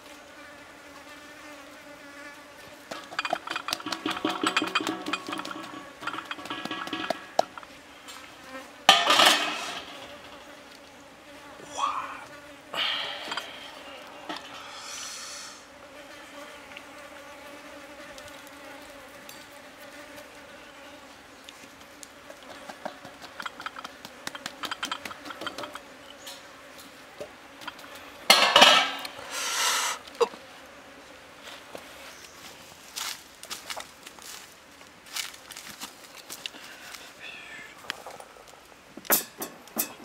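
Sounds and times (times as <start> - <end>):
insect buzzing: 0.0 - 28.3, 28.9 - 32.2
scraping rustling noises: 2.6 - 11.0, 31.4 - 37.2.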